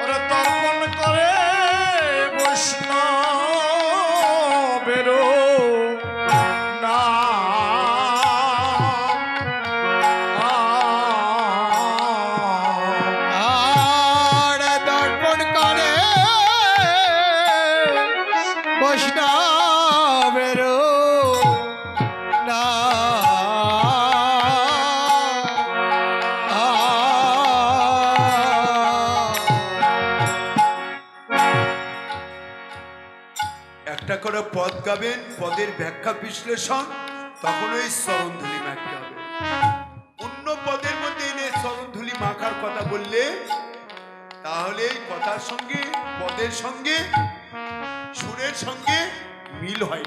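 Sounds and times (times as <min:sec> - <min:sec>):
person singing ornamented melody: 0:00.0 - 0:30.8, 0:33.9 - 0:39.6
harmonium tones: 0:00.0 - 0:50.0
keyboard chords: 0:00.0 - 0:50.0.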